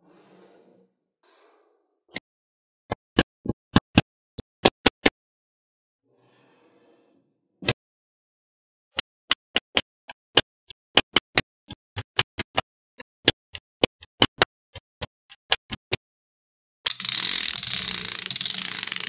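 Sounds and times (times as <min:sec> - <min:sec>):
magnetic balls clicking: 0:16.9 - 0:19.0.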